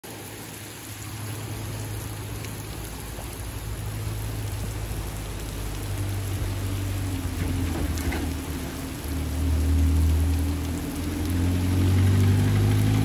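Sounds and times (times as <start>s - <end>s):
heavy rain on concrete: 0.0s - 13.0s.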